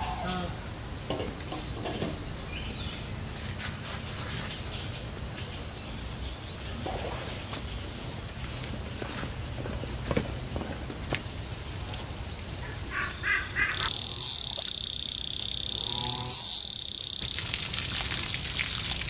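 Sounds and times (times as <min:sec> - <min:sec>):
high-pitched insect drone: 0:12.3 - 0:17.9.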